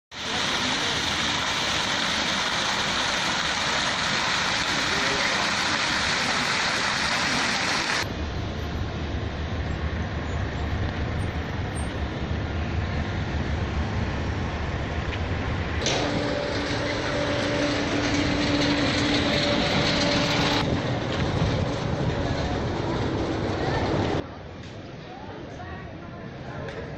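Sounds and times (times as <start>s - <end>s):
fountain jets splashing: 0.1s - 8.1s
low rumble: 8.0s - 24.2s.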